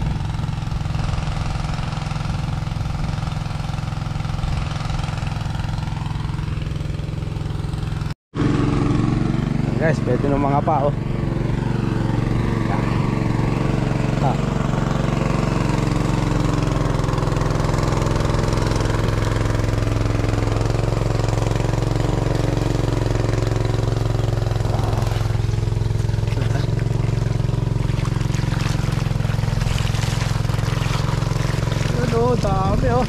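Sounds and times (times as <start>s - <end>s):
small engine running steadily: 0.0s - 33.0s.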